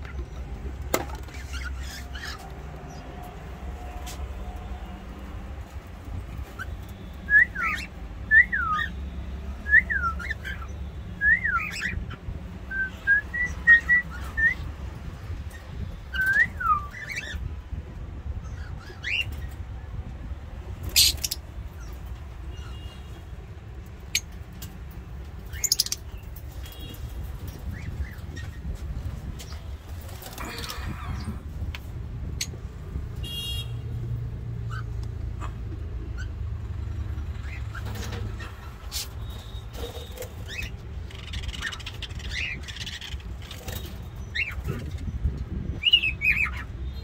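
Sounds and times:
cockatiels whistling: 7.3 - 8.9, 9.6 - 12.0, 16.1 - 17.4.

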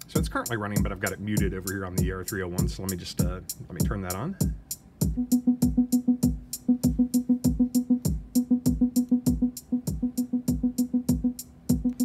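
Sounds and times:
ticking hi-hat: 0.0 - 12.0
kick drum falling in pitch: 3.8 - 12.0
plucky synth note repeating: 5.0 - 12.0.

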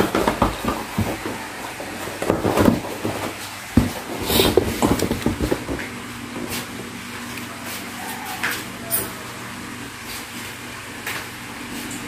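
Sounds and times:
handling knocks: 0.0 - 5.9.

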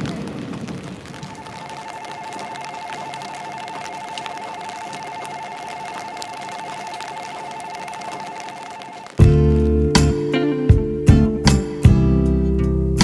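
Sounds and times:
light rain pattering: 0.0 - 12.9
level crossing warning bell: 1.8 - 9.2.

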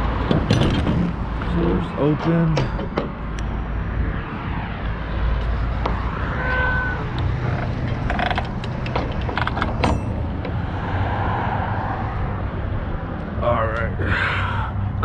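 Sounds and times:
metallic clicks and rattles: 7.4 - 10.6.

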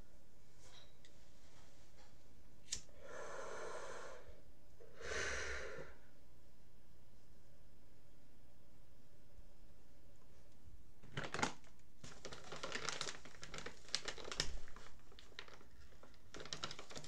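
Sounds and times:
lighter click: 2.7 - 2.9
hissing pull of breath: 2.8 - 6.0
long breath out: 2.9 - 6.1.

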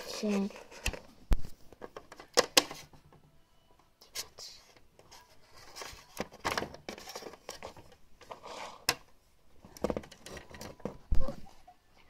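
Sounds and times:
plastic toys tapping and scraping: 4.7 - 11.4.

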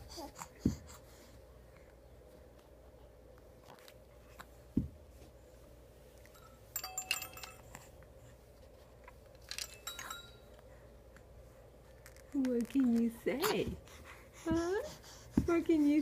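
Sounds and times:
faint steady hum: 0.0 - 16.0
soft thump: 4.7 - 5.0
baby toy jingling: 6.4 - 7.8, 9.6 - 10.5.

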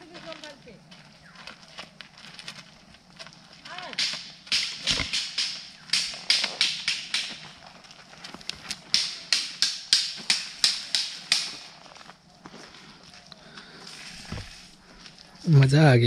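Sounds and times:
footsteps crunching on dry path: 0.0 - 16.0.

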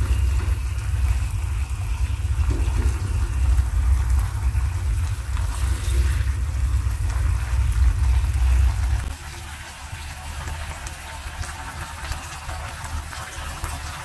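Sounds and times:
low rumble: 0.0 - 9.2
frying pan sizzling: 0.0 - 14.0.

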